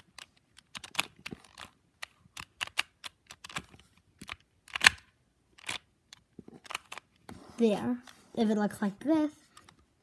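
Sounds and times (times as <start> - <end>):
plastic puzzle cube clicking: 0.0 - 7.2.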